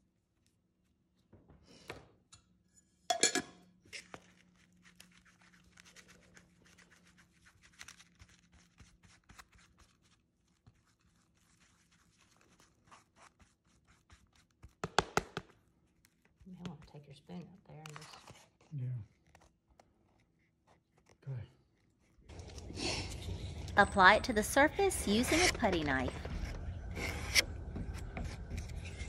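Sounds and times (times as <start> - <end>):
plastic spoon scraping filler: 25.1 - 29.0.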